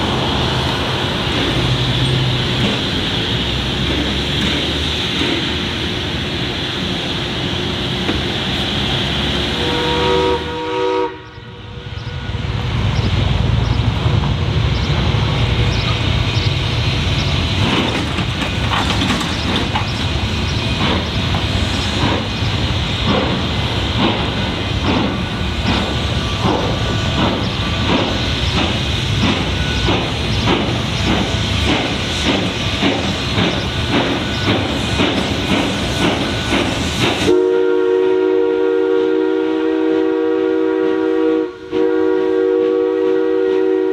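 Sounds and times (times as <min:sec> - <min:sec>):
steam locomotive chuffing: 0:00.0 - 0:43.9
steam whistle: 0:09.6 - 0:11.6, 0:37.3 - 0:43.9.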